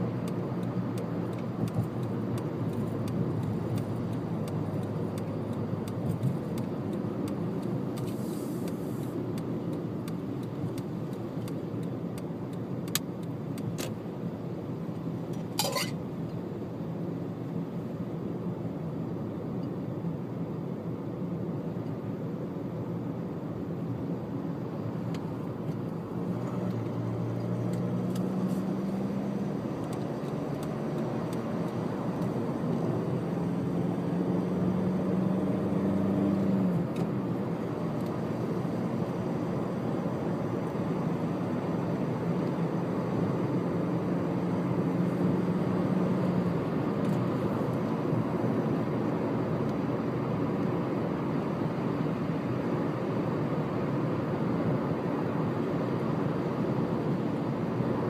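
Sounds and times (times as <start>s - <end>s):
tyre and road noise: 0.0s - 16.6s, 24.4s - 56.3s
low engine hum: 0.0s - 58.0s.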